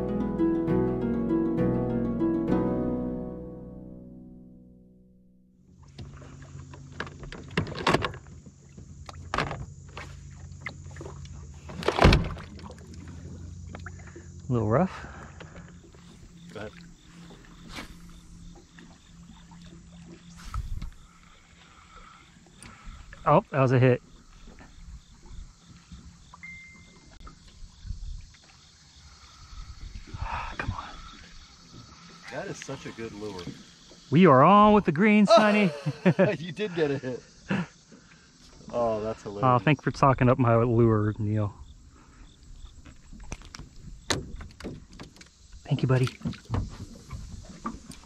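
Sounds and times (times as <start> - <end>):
low motor hum: 3.6 - 23.2
waves lapping against boat hull: 5.6 - 36.2, 41.8 - 48.0
heavy thunks: 11.7 - 12.6
wind on microphone: 20.4 - 21.1, 27.7 - 28.3, 29.5 - 31.2
thin whistle: 26.4 - 27.2.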